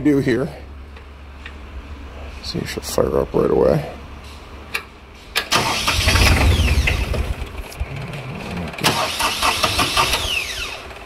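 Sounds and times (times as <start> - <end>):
engine cranking and turning over: 5.4 - 11.0.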